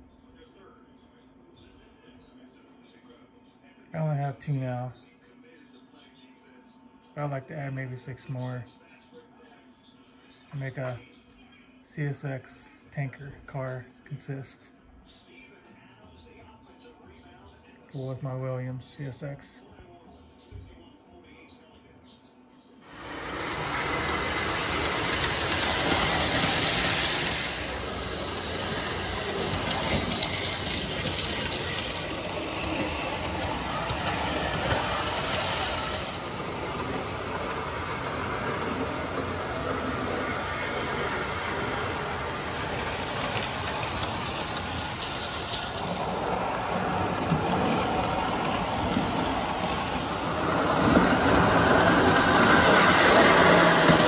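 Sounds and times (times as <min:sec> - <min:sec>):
model train rumbling: 0:22.9 - 0:54.0.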